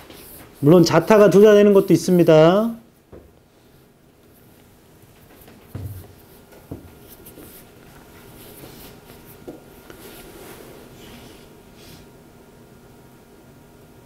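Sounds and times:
pens scratching on paper: 0:06.2 - 0:11.5.

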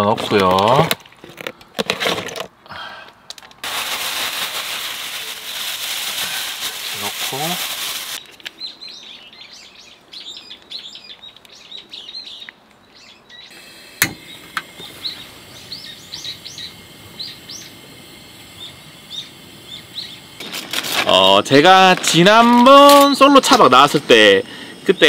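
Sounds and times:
small birds chirping: 0:08.2 - 0:13.6, 0:14.2 - 0:20.4, 0:24.5 - 0:25.0.

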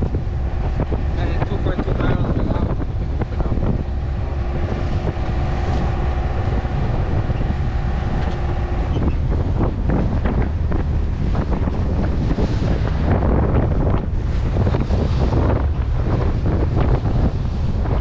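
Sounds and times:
waves splashing against hull: 0:00.0 - 0:18.0
wind buffeting microphone: 0:00.0 - 0:18.0.

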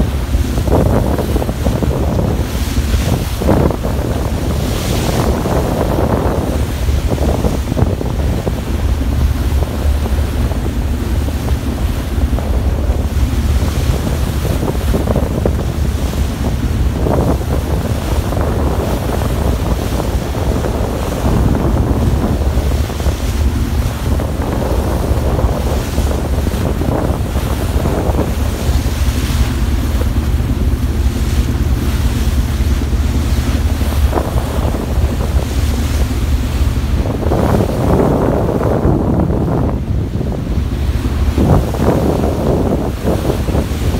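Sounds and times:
ship's wake churning and splashing: 0:00.0 - 0:43.9
steady low rumble: 0:00.0 - 0:43.9
wind buffeting microphone: 0:00.0 - 0:43.9.

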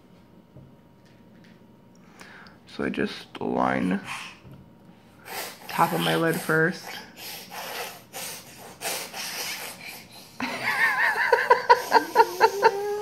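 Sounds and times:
woman laughing: 0:10.4 - 0:13.0.

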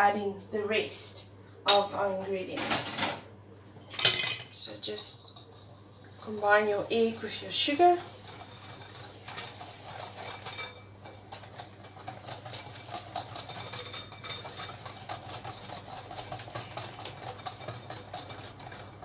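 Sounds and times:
whisk clicking against glass bowl: 0:08.7 - 0:19.0.

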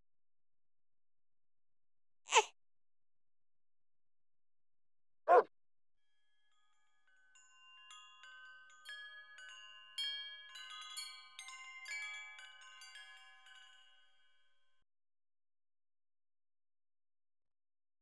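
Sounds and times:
metal chimes ringing: 0:06.5 - 0:14.5.

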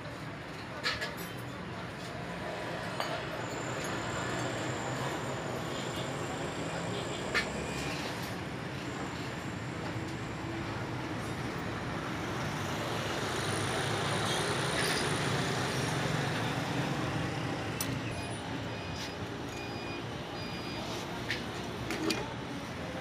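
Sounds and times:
road traffic noise: 0:00.0 - 0:23.0
short electronic beeps: 0:18.1 - 0:21.1.

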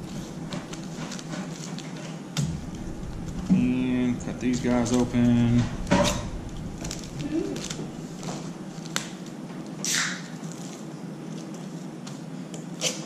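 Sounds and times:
loud plastic rustle: 0:00.0 - 0:11.8
plastic bags crinkling: 0:06.3 - 0:11.9.

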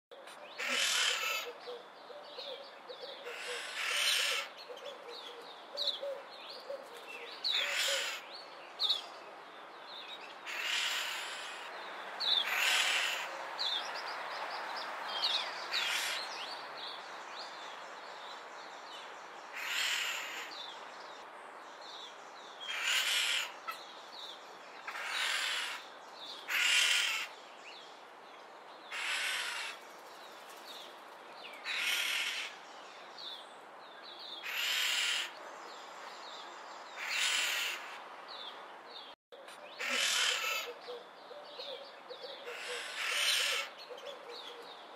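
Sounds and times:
starlings giving harsh calls: 0:00.6 - 0:01.6, 0:03.2 - 0:04.6, 0:07.5 - 0:08.3, 0:10.5 - 0:11.7, 0:12.3 - 0:13.3, 0:15.7 - 0:16.5, 0:19.5 - 0:20.5, 0:22.6 - 0:23.8, 0:24.8 - 0:27.3, 0:28.9 - 0:29.8, 0:31.6 - 0:32.6, 0:34.4 - 0:35.4, 0:37.0 - 0:38.0, 0:39.7 - 0:40.9, 0:42.4 - 0:44.0.

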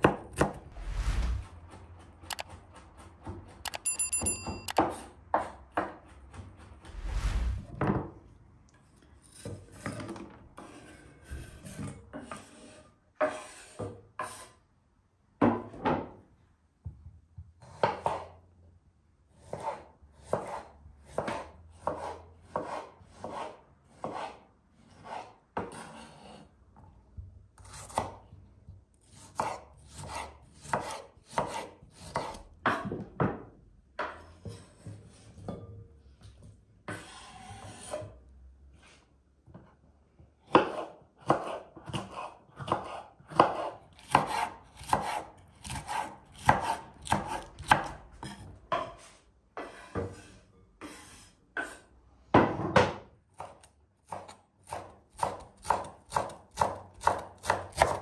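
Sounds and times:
knife chopping on wooden board: 0:19.4 - 0:24.4, 0:29.1 - 0:33.0, 0:40.4 - 0:49.0, 0:53.4 - 0:58.0.

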